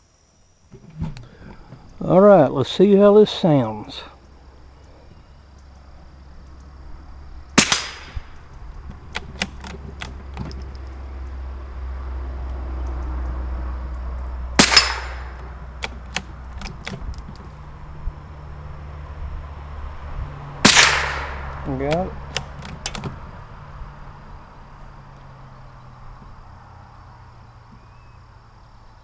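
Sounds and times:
rifle shots with echo: 7.6 - 8.3, 14.6 - 15.4, 20.6 - 22.0
rifle action clicks: 14.6 - 17.4.

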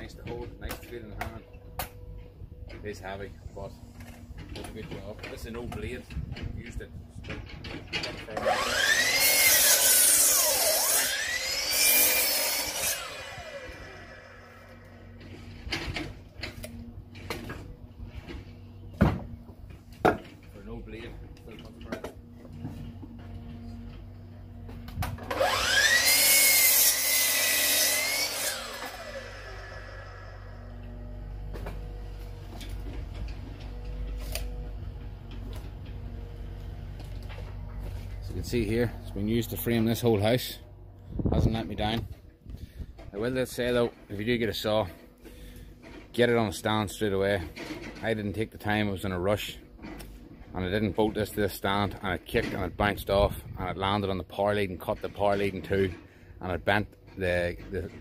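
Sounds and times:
miter saw whining: 7.8 - 18.9, 22.0 - 41.9.

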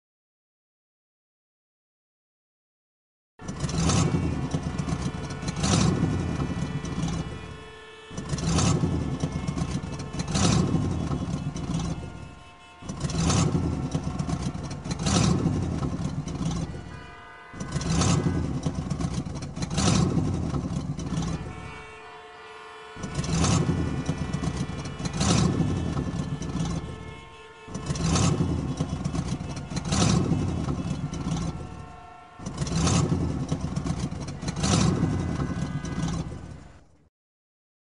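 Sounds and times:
vehicle engine surging: 3.4 - 37.0.

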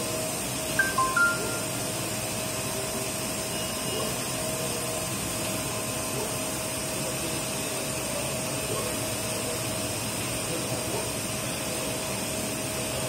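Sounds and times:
printer whirring hiss: 0.0 - 13.0
thin machine whine: 0.7 - 4.1.

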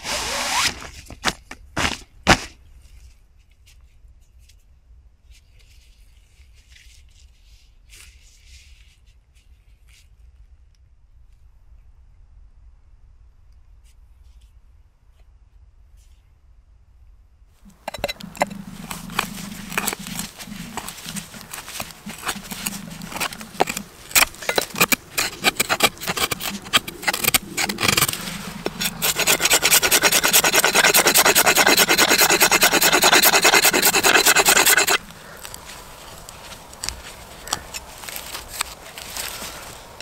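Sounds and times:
wood scraping and rasping: 17.7 - 40.0.

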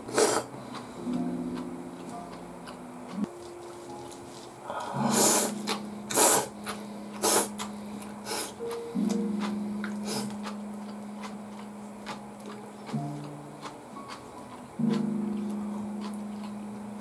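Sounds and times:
person slurping noodles: 0.0 - 0.5, 4.7 - 6.6, 7.2 - 7.6, 8.2 - 8.7, 10.0 - 10.4
soft piano music: 0.5 - 17.0.

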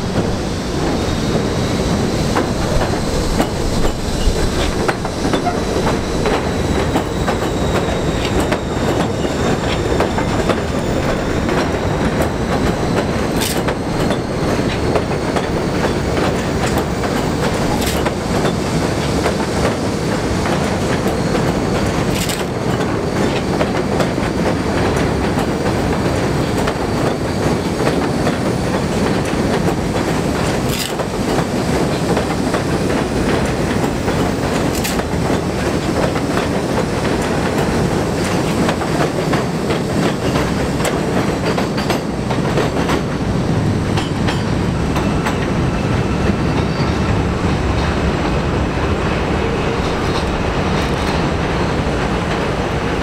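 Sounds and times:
subway train rumbling on rails: 0.0 - 53.0
wheels clicking over rail joints: 2.4 - 19.8, 20.5 - 43.1.

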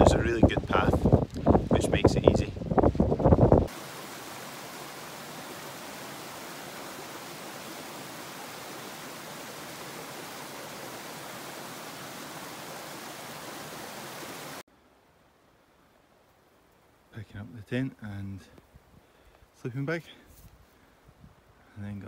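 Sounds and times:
steady rushing hiss: 0.0 - 17.2.

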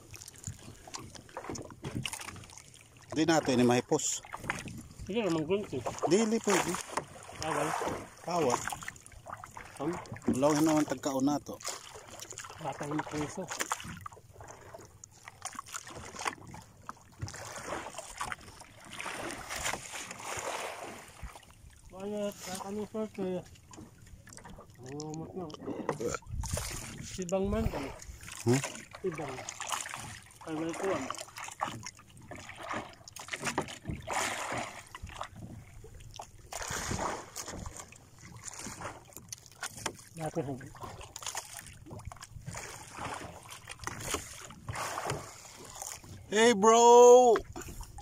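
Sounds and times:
rushing water: 0.0 - 48.0
water splashing against boat: 0.0 - 48.0
wind buffeting microphone: 26.2 - 28.2.

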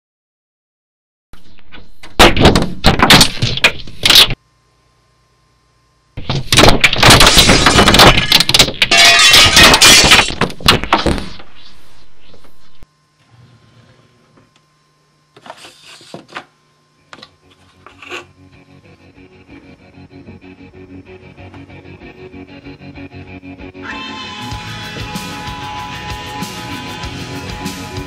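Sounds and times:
low hum: 3.0 - 15.3
crashing and clattering: 6.3 - 11.4.

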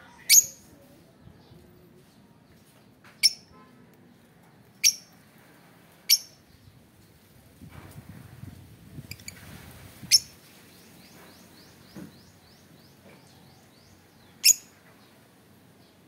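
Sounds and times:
lovebirds shrill calls: 3.2 - 3.5, 4.8 - 5.2, 6.1 - 6.5, 9.0 - 13.0, 13.6 - 14.8.

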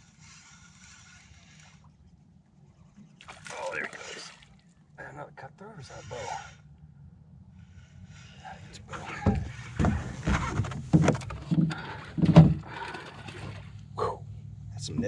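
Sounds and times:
boat motor humming: 0.0 - 5.0, 5.6 - 15.0
loud irregular knocks and thumps: 9.0 - 13.6.

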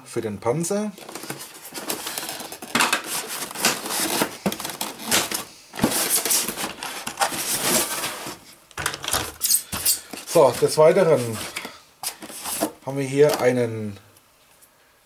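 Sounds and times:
plastic scraping against foam: 1.0 - 8.6.

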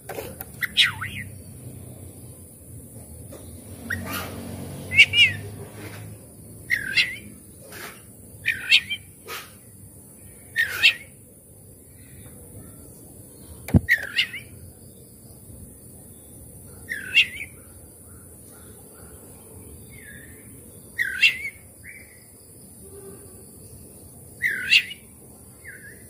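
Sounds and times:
bird giving harsh calls: 0.5 - 1.3, 3.8 - 6.1, 6.7 - 9.7, 10.5 - 11.2, 24.4 - 25.0.

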